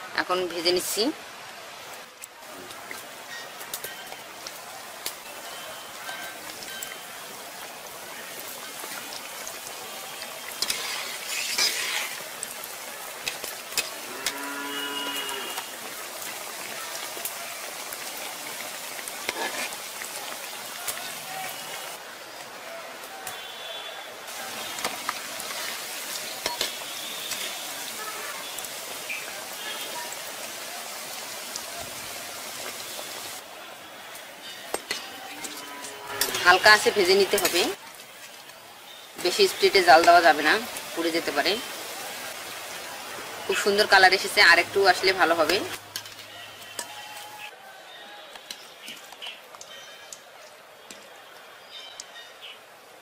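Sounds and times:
fish deep-frying in oil: 2.2s - 22.5s, 23.2s - 47.6s
cow mooing: 14.0s - 15.7s, 35.3s - 36.5s.

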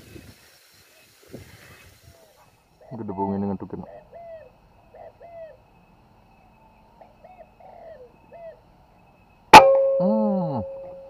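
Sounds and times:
faint bird chirps: 0.8s - 11.0s
metallic ringing: 9.5s - 11.0s.

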